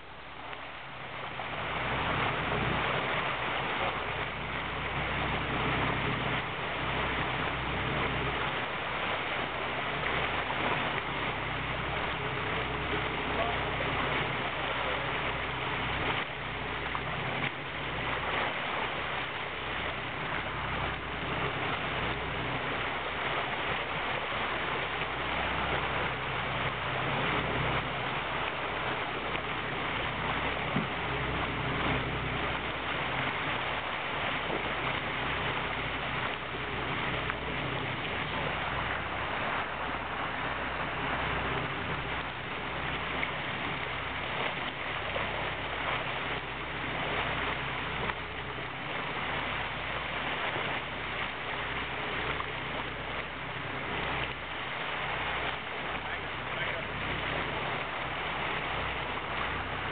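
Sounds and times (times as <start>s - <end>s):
boat engine humming: 0.0s - 59.9s
water churning in boat wake: 0.0s - 59.9s.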